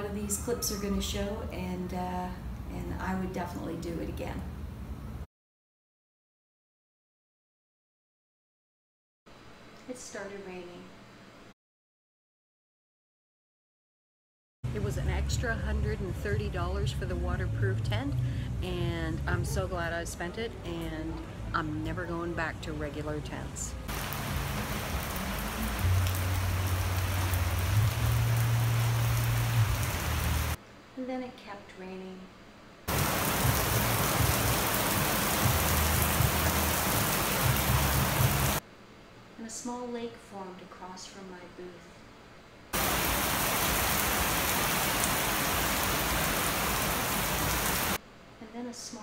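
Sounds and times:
low steady hum: 14.6s - 42.9s
rain on wet pavement: 23.9s - 30.6s, 32.9s - 38.6s, 42.8s - 48.0s.

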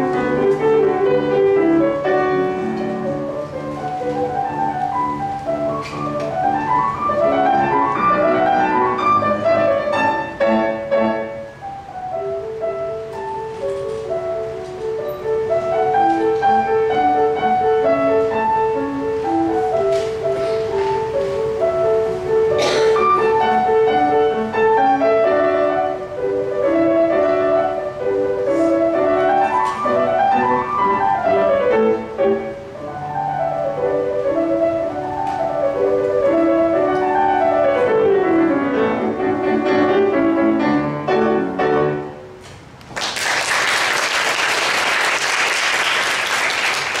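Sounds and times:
solo piano piece: 0.0s - 42.9s
audience applause: 42.9s - 47.0s.

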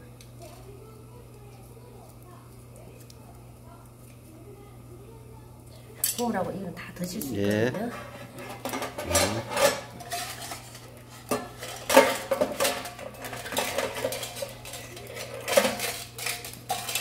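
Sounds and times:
steel tableware clanking: 7.8s - 17.0s.

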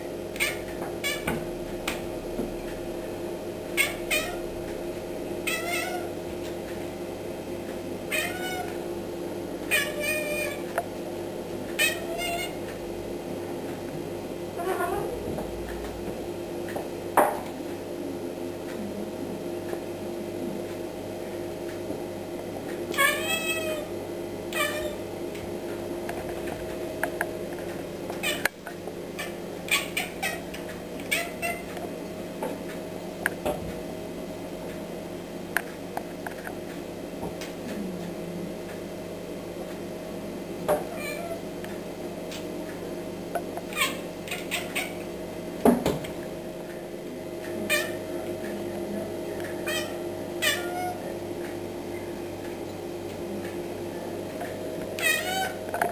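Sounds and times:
cat chattering and chirping: 0.4s - 1.3s, 3.8s - 4.4s, 29.2s - 30.4s, 31.1s - 31.6s, 43.7s - 45.0s, 47.7s - 48.0s, 49.6s - 51.0s
cat meowing: 3.8s - 4.4s, 5.5s - 6.1s, 8.1s - 8.7s, 9.7s - 10.6s, 11.8s - 12.6s, 22.9s - 23.9s, 24.5s - 25.0s, 49.7s - 51.0s, 55.0s - 55.6s.

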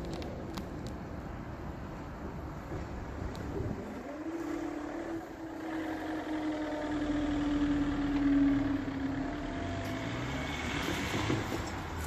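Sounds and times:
car engine pulling away: 3.7s - 12.0s.

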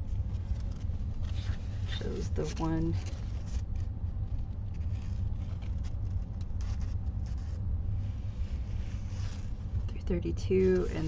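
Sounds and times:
low background hum: 0.0s - 11.0s
stiff canvas rustling and scraping: 0.1s - 9.8s.

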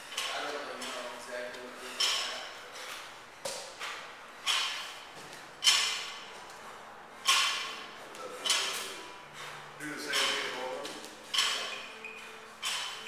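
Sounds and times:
barbell hits ringing: 4.4s - 4.9s, 5.6s - 6.3s, 7.2s - 7.8s, 11.3s - 11.9s, 12.6s - 13.0s.

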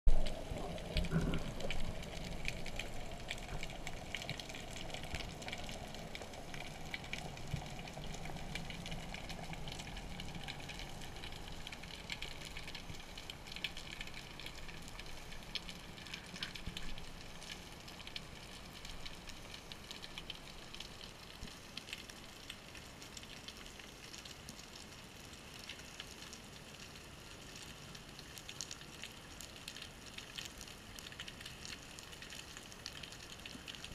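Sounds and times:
low rush of water: 0.1s - 23.2s.

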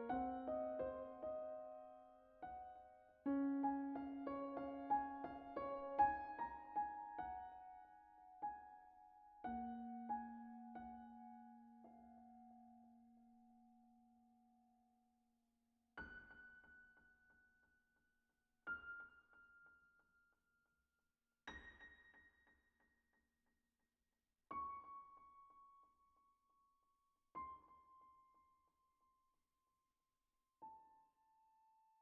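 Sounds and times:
slow piano notes: 0.0s - 13.7s.

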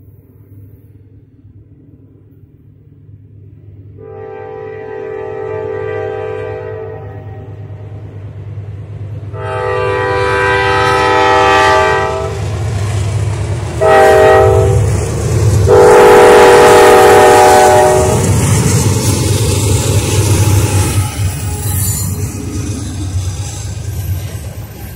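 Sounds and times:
locomotive air horn blasts: 4.0s - 7.6s, 9.3s - 12.5s, 13.8s - 14.9s, 15.7s - 18.3s.

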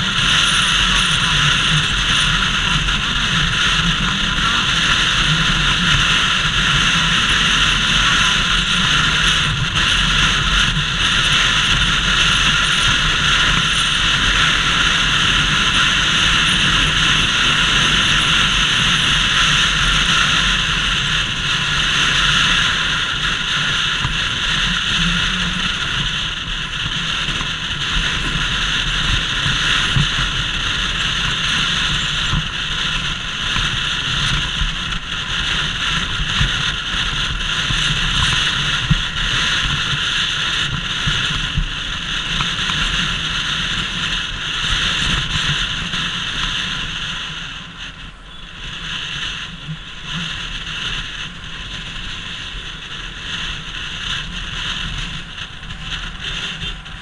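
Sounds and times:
motorcycle engine running: 0.0s - 57.0s
wind blast on microphone: 48.7s - 57.0s.

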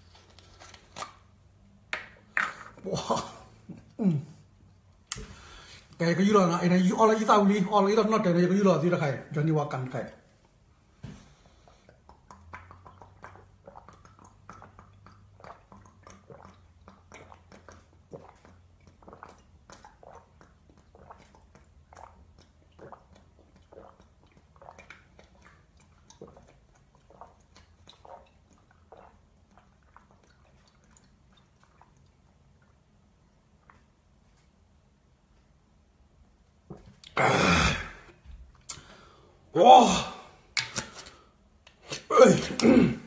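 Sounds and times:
man swallowing a drink: 36.7s - 38.9s, 41.7s - 43.0s.

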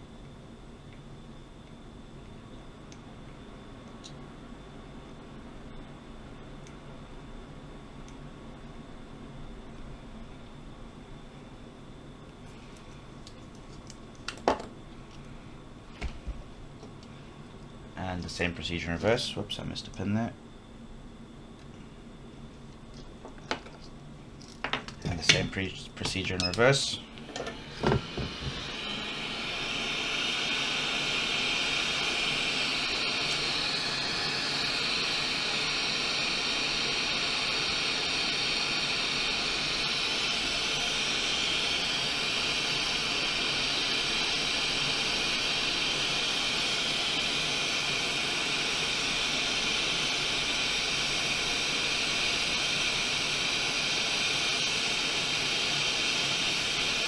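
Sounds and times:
hot air blower hissing: 0.0s - 0.2s, 25.0s - 57.0s.

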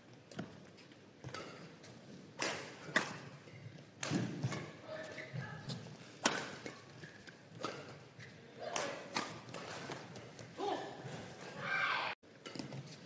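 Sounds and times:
sneakers squeaking: 0.3s - 11.6s
racket hitting shuttlecock: 1.2s - 10.5s, 12.4s - 13.0s.

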